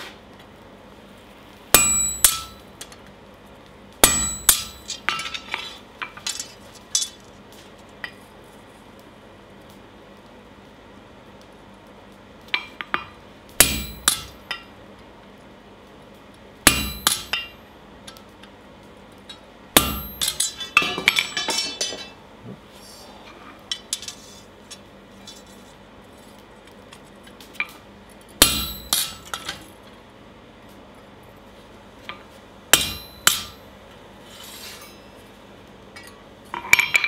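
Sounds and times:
hammer clanging on metal: 0:01.8 - 0:02.6, 0:04.0 - 0:05.5, 0:13.6 - 0:14.4, 0:16.7 - 0:17.5, 0:19.8 - 0:22.2, 0:28.4 - 0:29.6, 0:32.8 - 0:33.6.

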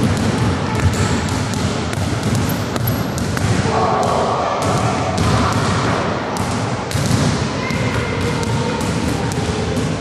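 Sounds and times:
basketball bouncing on wooden floor: 0:00.0 - 0:05.8.

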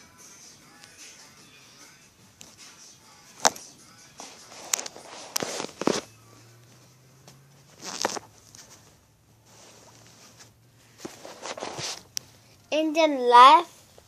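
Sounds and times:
faint low hum: 0:00.0 - 0:13.0
phone handling rustles: 0:04.6 - 0:06.1, 0:07.7 - 0:08.9.

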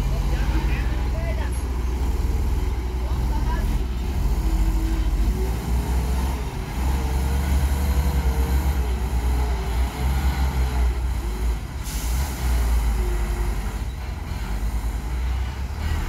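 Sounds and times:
dump truck engines droning: 0:00.0 - 0:16.0
hiss of released air: 0:11.8 - 0:12.4.

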